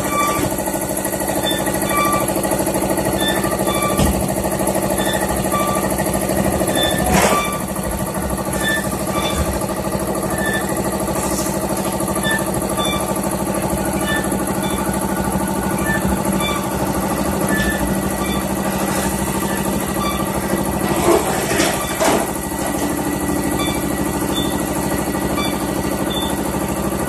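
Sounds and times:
press machine hum: 0.0 - 27.0.

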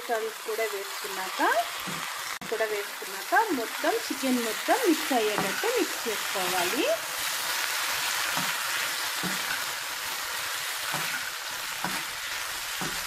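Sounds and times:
food sizzling in oil: 0.0 - 13.0
spatula scraping pan: 3.1 - 13.0.

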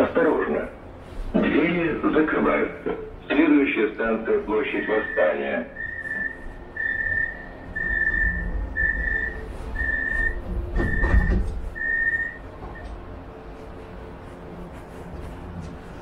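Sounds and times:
train door warning beeps: 4.6 - 13.1.

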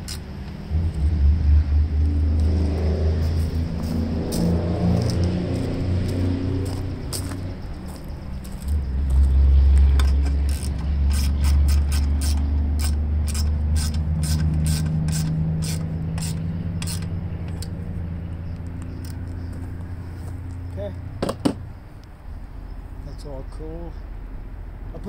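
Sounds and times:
low rumble: 0.5 - 11.1
socket ratchet clicking: 10.0 - 17.7.

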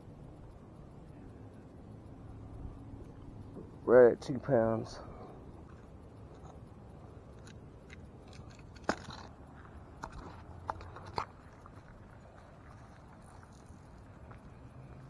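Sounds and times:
handling noise clicks and crunches: 3.0 - 15.0.

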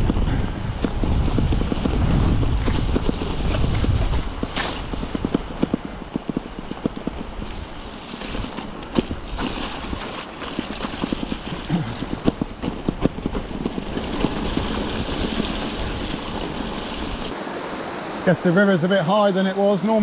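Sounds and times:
wind on microphone: 0.0 - 17.3
bicycle rattling over stones: 0.8 - 17.3
river rushing: 14.4 - 20.0.

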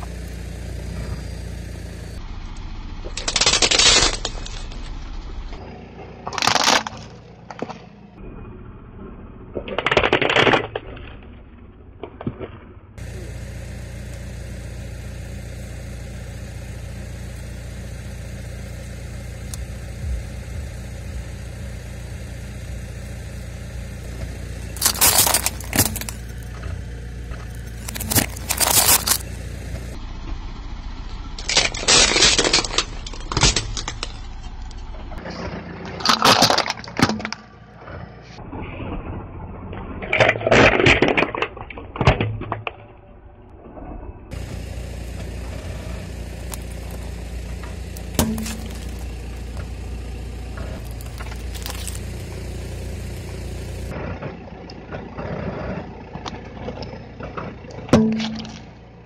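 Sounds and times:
car engine running low: 0.0 - 59.0
plastic containers crushed by tyre: 3.1 - 4.9, 6.2 - 7.9, 9.7 - 11.0, 24.6 - 26.6, 27.3 - 29.3, 31.4 - 37.6, 46.2 - 50.0, 50.6 - 53.9, 57.9 - 58.8.

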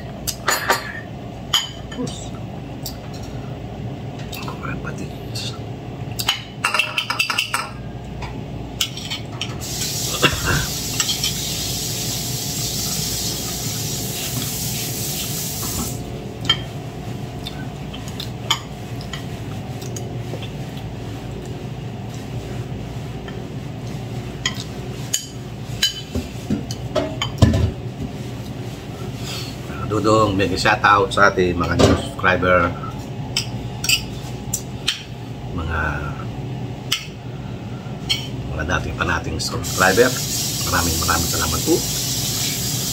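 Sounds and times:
steady hiss: 9.6 - 16.1, 39.6 - 42.9.

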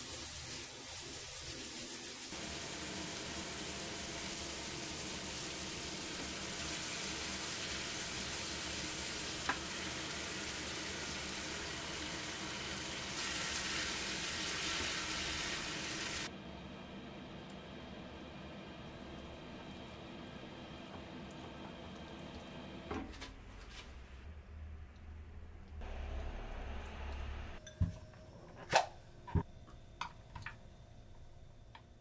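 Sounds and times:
food sizzling in a pan: 0.0 - 16.3.

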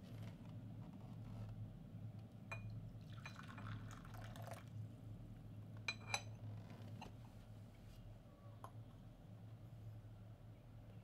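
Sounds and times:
water pouring into a cup: 3.0 - 4.7.

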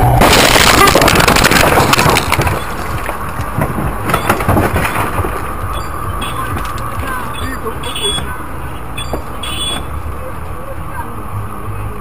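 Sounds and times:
car crash impact: 0.0 - 7.2
knocks and rattles: 0.2 - 7.3.

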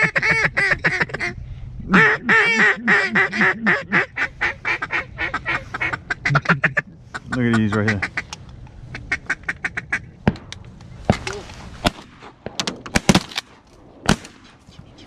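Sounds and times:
ducks quacking: 0.0 - 10.1.

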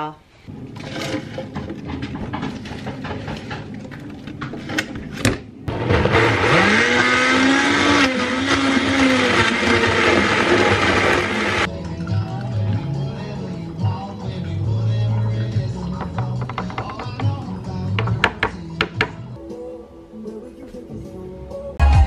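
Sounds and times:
blender motor running: 5.7 - 11.7.

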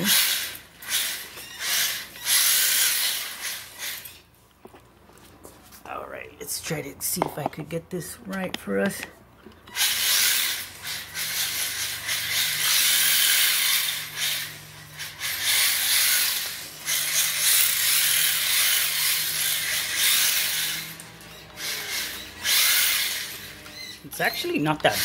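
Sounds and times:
electric motor whining: 9.7 - 25.0.

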